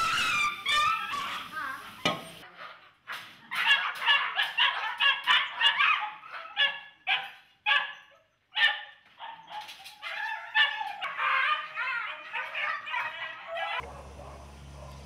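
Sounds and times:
dogs barking: 3.0s - 15.0s.

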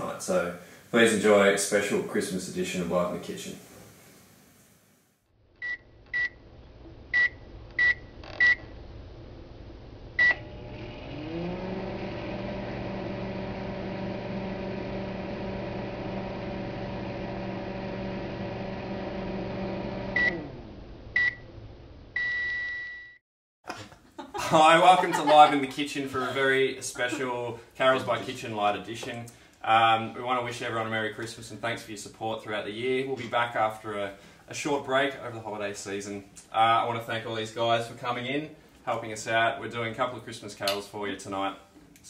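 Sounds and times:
microwave finish beeps: 5.6s - 6.4s, 7.1s - 8.7s, 10.2s - 10.5s, 20.1s - 20.5s, 21.2s - 21.4s, 22.2s - 23.2s
microwave running hum: 5.6s - 22.4s.

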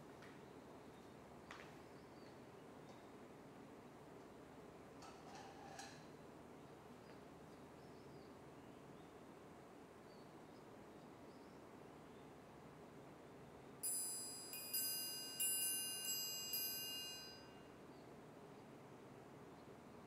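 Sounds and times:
small metal chimes ringing: 13.8s - 17.7s.

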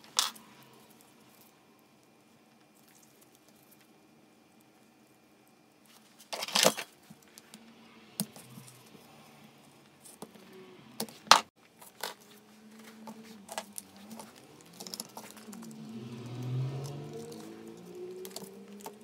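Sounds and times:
small metal parts clicking: 11.8s - 15.8s, 16.8s - 19.0s.

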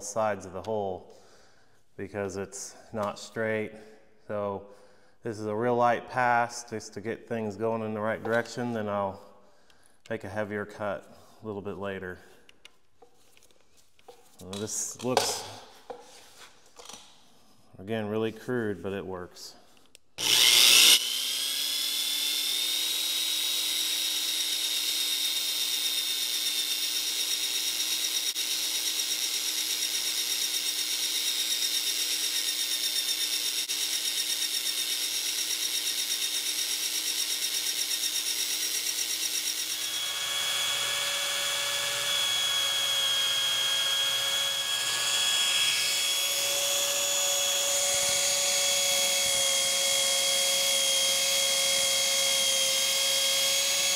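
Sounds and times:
electric drill whine: 20.2s - 53.9s.

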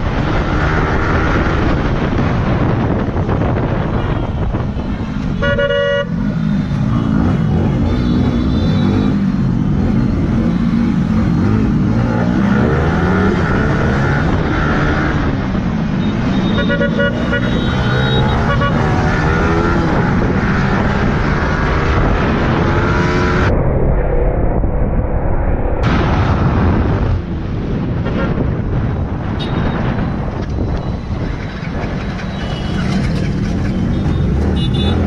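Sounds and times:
motorcycle engine revving: 4.8s - 23.5s
horn beeps: 5.3s - 6.4s, 7.1s - 9.3s, 16.0s - 19.4s.

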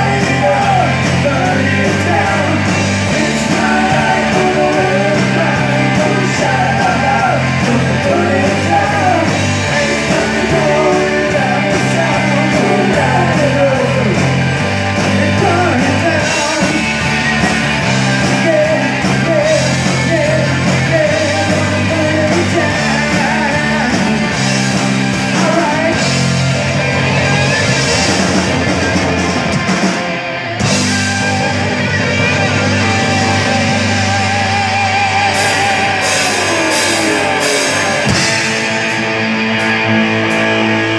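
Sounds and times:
person singing: 0.0s - 14.4s, 15.0s - 17.1s, 18.0s - 24.4s, 25.2s - 26.3s, 32.5s - 38.4s
bass guitar: 0.0s - 40.9s
drum kit: 0.0s - 40.9s
electric guitars: 0.0s - 40.9s.

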